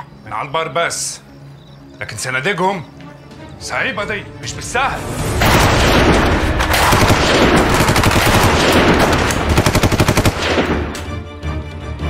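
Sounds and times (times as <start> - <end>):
dramatic background music: 0.0 - 12.0
automatic gunfire: 5.5 - 11.0.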